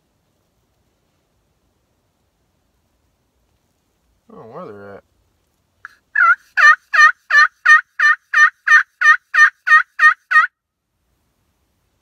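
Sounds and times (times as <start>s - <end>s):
turkey call yelps: 5.8s - 10.5s.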